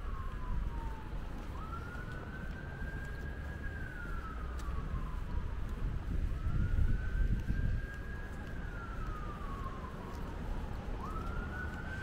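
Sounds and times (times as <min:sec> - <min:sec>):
emergency vehicle siren wailing: 0:00.0 - 0:12.0.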